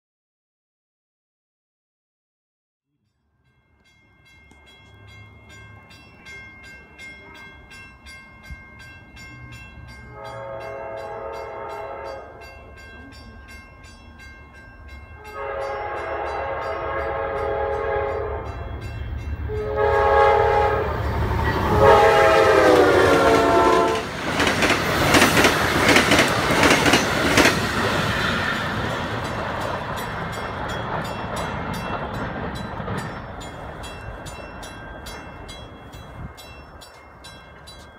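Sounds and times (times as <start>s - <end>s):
train horn blasts: 10.0s - 12.5s, 15.2s - 18.8s, 19.4s - 24.1s
diesel locomotive rumble: 15.4s - 37.9s.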